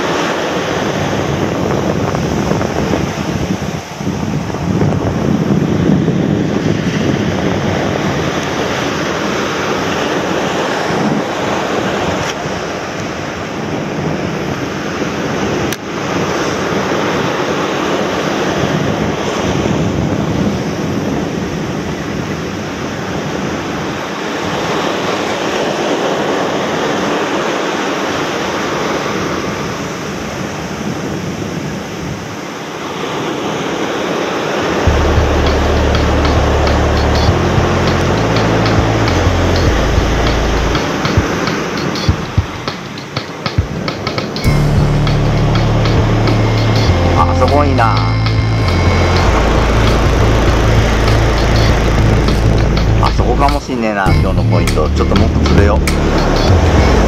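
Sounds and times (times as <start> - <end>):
wind buffeting microphone: 0.0 - 25.8, 48.4 - 53.7
surf breaking on beach: 0.0 - 57.0.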